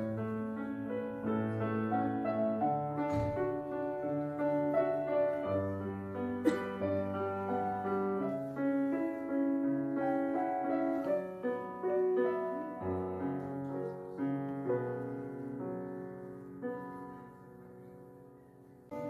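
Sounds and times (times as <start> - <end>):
slow piano music: 0.0 - 19.0.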